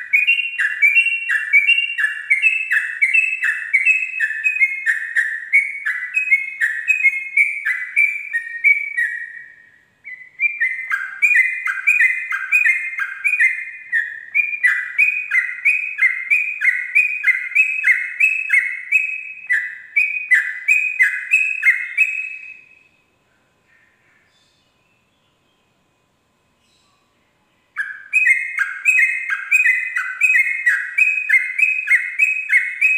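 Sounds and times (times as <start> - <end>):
bulbul singing: 0.0 - 23.1, 26.5 - 32.9.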